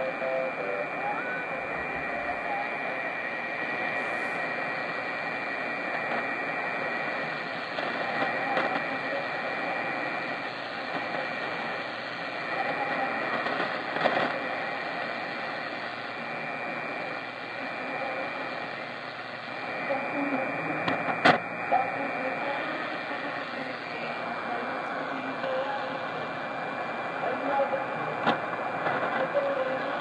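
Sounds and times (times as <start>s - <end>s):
radio static hiss: 0.0s - 30.0s
brief radio crackles: 20.8s - 21.8s.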